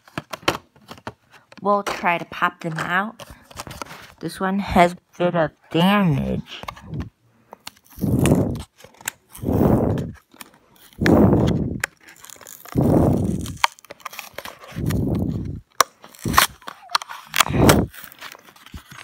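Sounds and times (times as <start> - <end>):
plastic blister crunching: 6.5 - 19.0
cardboard tearing: 6.8 - 19.0.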